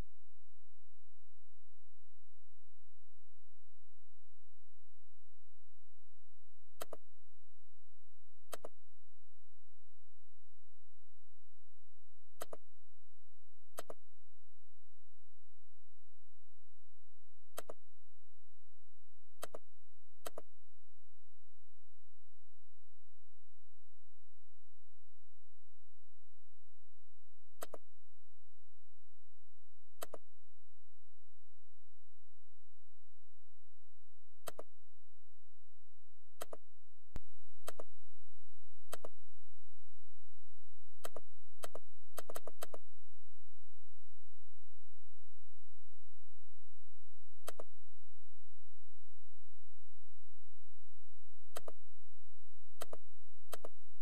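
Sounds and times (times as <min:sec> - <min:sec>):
low hum: 0:00.0 - 0:54.0
computer mouse clicking: 0:06.8 - 0:07.0, 0:08.5 - 0:08.8, 0:12.4 - 0:12.6, 0:13.8 - 0:14.0, 0:17.6 - 0:17.8, 0:19.4 - 0:19.6, 0:20.2 - 0:20.5, 0:27.6 - 0:27.8, 0:30.0 - 0:30.2, 0:34.4 - 0:34.7, 0:36.4 - 0:36.6, 0:37.6 - 0:37.9, 0:38.9 - 0:39.1, 0:41.0 - 0:42.8, 0:47.4 - 0:47.7, 0:51.5 - 0:51.8, 0:52.8 - 0:53.8.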